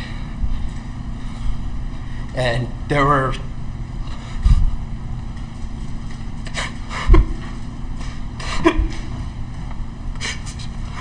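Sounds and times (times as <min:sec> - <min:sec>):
steady low hum: 0:00.0 - 0:11.0
man sobbing: 0:08.4 - 0:09.2.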